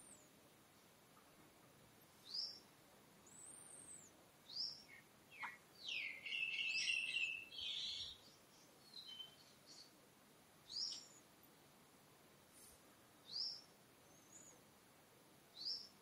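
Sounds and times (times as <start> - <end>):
birds whistling: 3.3 - 8.3.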